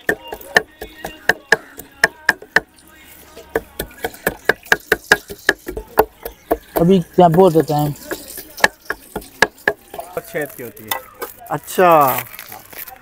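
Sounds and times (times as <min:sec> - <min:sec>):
knife chopping on board: 0:00.0 - 0:02.6.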